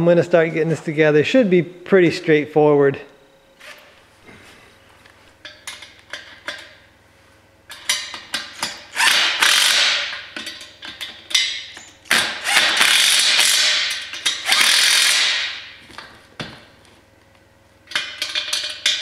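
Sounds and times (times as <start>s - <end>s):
impact driver rattling: 12.1s - 15.6s.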